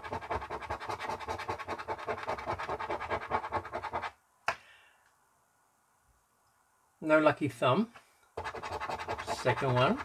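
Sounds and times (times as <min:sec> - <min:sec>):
coin scraping scratch card: 0:00.0 - 0:04.1, 0:08.4 - 0:10.0.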